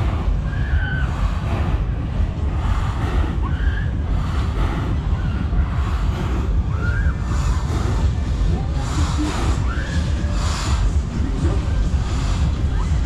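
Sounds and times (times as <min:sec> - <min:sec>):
wind buffeting microphone: 0:00.0 - 0:13.0
faint cries: 0:00.3 - 0:01.4.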